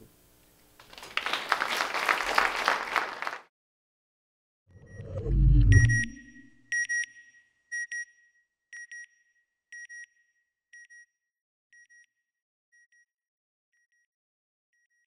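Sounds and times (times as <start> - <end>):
electronic double beeps: 4.8 - 6.8
low whoosh: 4.9 - 6.5.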